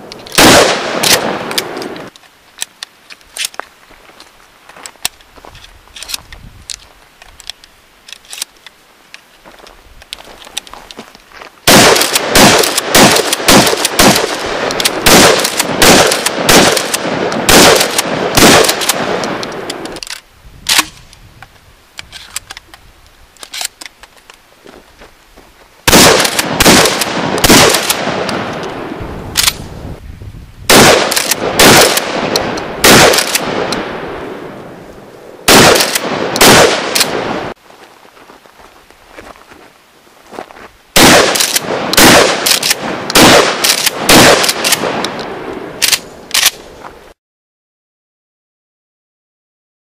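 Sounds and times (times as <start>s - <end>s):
shotgun shots with echo: 0.4s - 2.0s, 11.7s - 19.4s, 25.9s - 28.5s, 30.7s - 34.0s, 35.5s - 37.5s, 41.0s - 45.0s
shotgun pump action: 29.4s - 29.6s, 41.0s - 45.2s, 45.8s - 46.6s.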